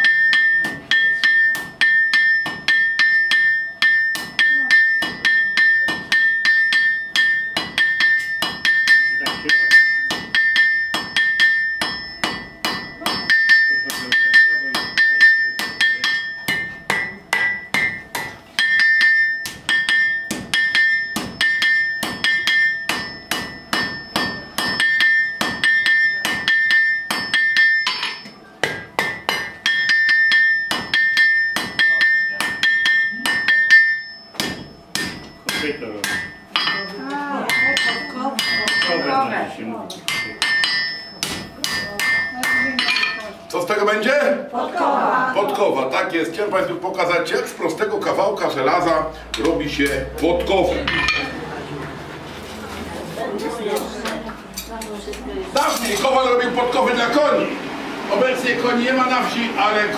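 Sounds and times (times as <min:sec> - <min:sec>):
hammer striking iron on anvil: 0:00.0 - 0:39.2, 0:40.0 - 0:43.3, 0:48.0 - 0:51.4.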